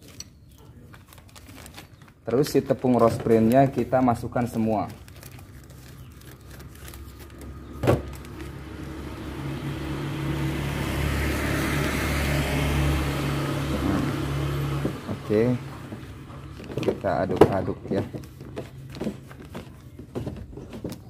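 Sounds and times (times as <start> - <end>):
vehicle engine running: 5.2 - 20.3.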